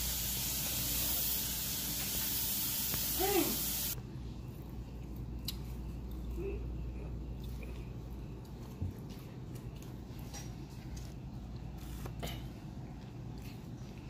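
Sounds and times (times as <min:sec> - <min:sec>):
steady broad hiss: 0:00.0 - 0:04.0.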